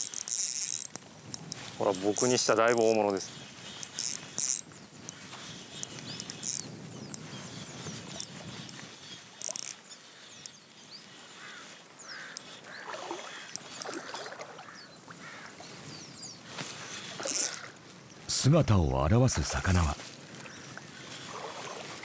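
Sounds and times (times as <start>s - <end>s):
fishing reel drag zipping: 0.0s - 15.4s, 16.4s - 17.8s, 20.8s - 22.0s.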